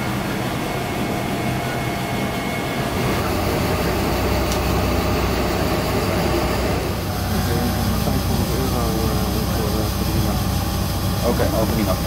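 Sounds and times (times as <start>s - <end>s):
air conditioning hum in cabin: 0.0s - 12.0s.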